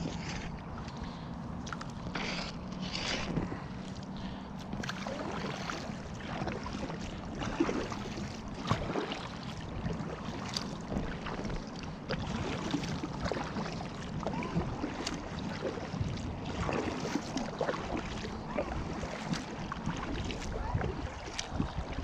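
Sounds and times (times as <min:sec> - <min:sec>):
paddle splashing in water: 0:00.0 - 0:22.0
wind on microphone: 0:14.2 - 0:22.0.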